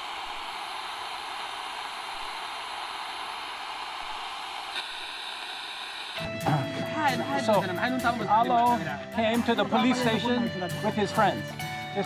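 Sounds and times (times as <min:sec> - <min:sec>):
static hiss: 0:00.0 - 0:06.3.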